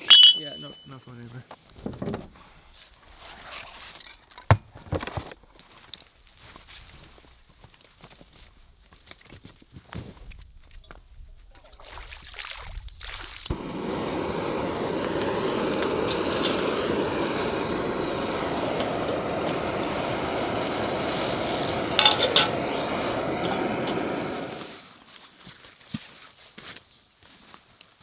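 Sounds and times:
camp stove hissing: 0:13.5 - 0:25.1
cook pot clinking on burner: 0:21.9 - 0:22.6.

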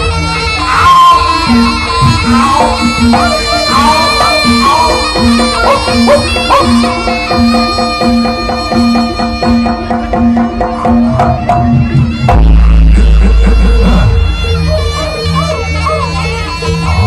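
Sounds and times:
shawm playing wavering melody: 0:00.0 - 0:17.0
drums and gongs: 0:00.6 - 0:17.0.

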